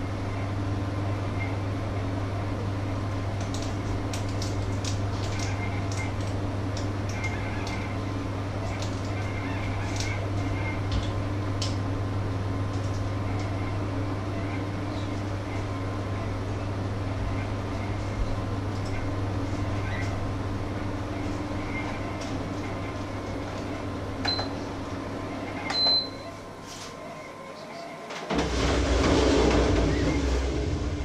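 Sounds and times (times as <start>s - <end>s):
electrical appliance hum: 0.0s - 31.0s.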